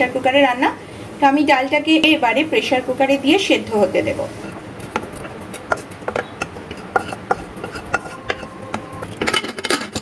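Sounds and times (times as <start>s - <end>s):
metal spatula scraping a pan: 6.7s - 10.0s
metal lid clattering: 7.0s - 10.0s.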